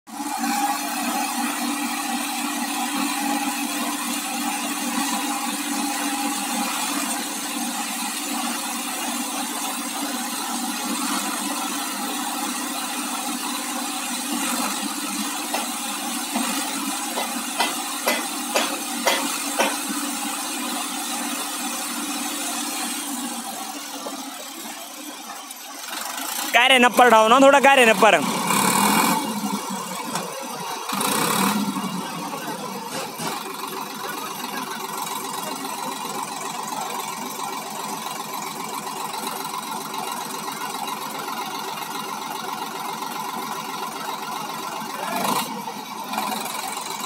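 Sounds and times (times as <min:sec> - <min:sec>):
tractor diesel engine running: 0:00.1 - 0:47.0
sharp knocks: 0:17.2 - 0:19.8.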